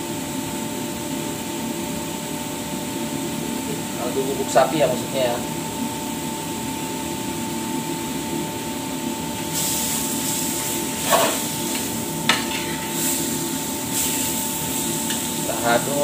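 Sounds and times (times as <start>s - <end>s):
frying sizzle: 9.2s - 16.0s
metal spoon scraping pan: 11.0s - 11.5s.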